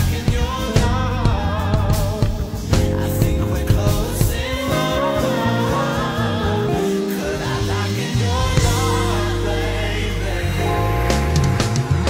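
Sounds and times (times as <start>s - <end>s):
drum kit: 0.0s - 12.0s
electric bass: 0.0s - 12.0s
electric piano: 2.4s - 12.0s
bending melody line: 2.9s - 7.4s, 8.6s - 12.0s.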